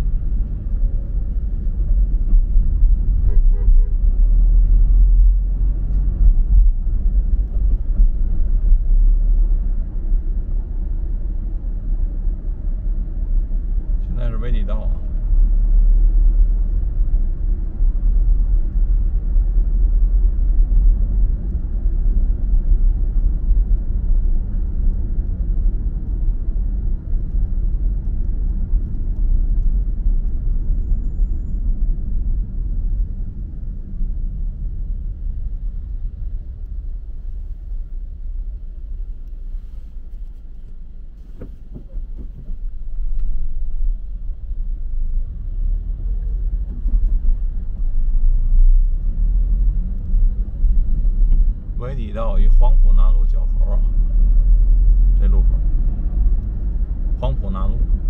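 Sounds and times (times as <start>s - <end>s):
car driving on road: 0.0s - 58.0s.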